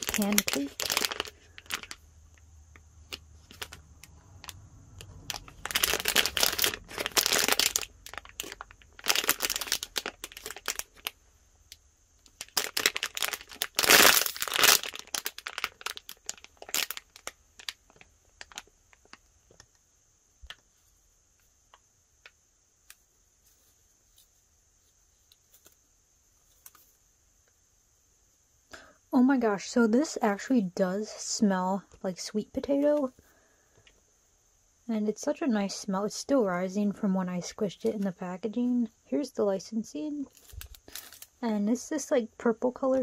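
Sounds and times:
plastic bag crinkling: 0.0s - 11.2s, 12.2s - 19.7s, 40.2s - 41.4s.

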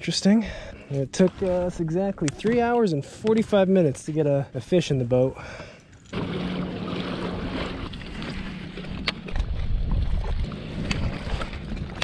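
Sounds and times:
water splashing along kayak hull: 5.4s - 12.0s
wind buffeting microphone: 7.4s - 12.0s.

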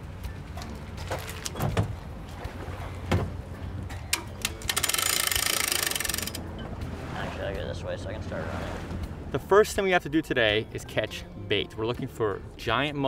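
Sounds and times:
knocks and clunks: 3.0s - 4.3s
hand winch ratcheting clicks: 4.1s - 6.4s.

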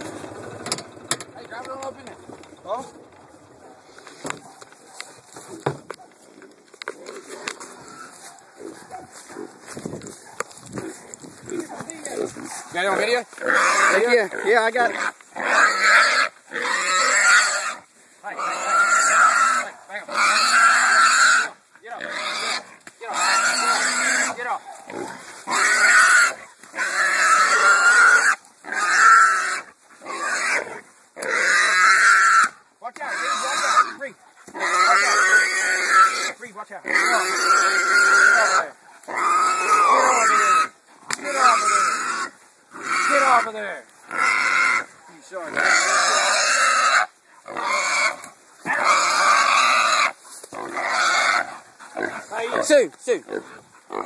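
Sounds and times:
hog squealing loudly: 13.4s - 14.2s, 14.9s - 17.8s, 18.4s - 43.5s, 45.5s - 52.7s.

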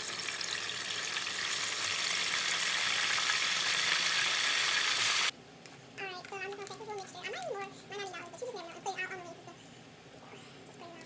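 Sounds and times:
deep-frying sizzle and crackles: 0.0s - 5.3s.

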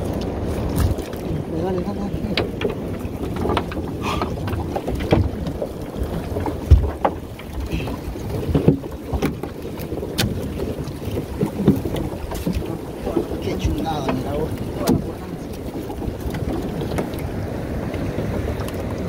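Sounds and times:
knocks and thumps on boat: 0.0s - 19.0s
water splashing: 0.0s - 19.0s
wind buffeting microphone: 0.0s - 19.0s.

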